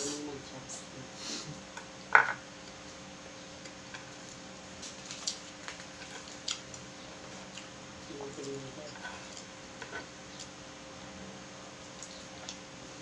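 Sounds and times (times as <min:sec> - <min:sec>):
person chewing noodles: 0:04.1 - 0:07.8.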